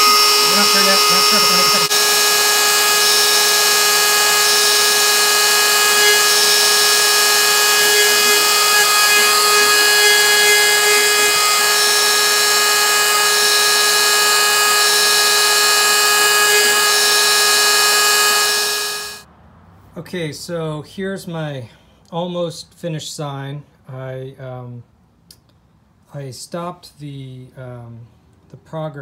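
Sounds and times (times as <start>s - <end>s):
router spindle high whine: 0.0s - 19.2s.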